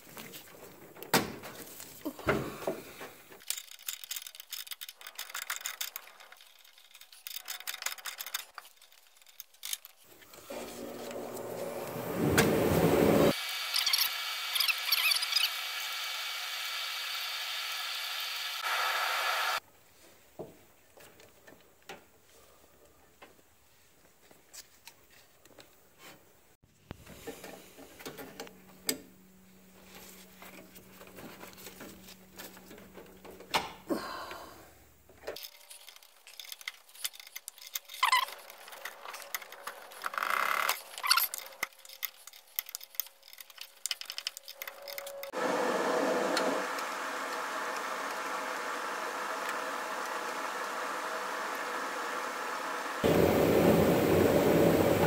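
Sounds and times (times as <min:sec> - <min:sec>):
short squeaky scrapes: 0:37.8 - 0:41.6.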